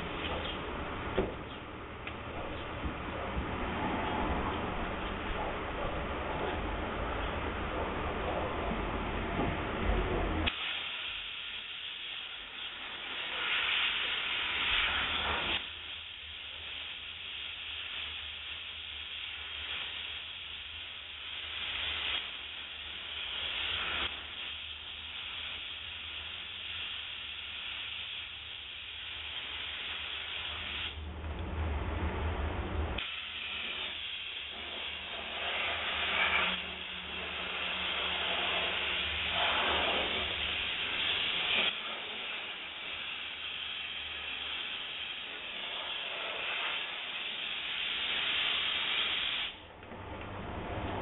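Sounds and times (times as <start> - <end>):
low rumble: 0.0 - 10.4, 31.0 - 33.0, 49.7 - 51.0
steam cleaner nozzle hissing: 10.4 - 31.0, 33.0 - 49.6.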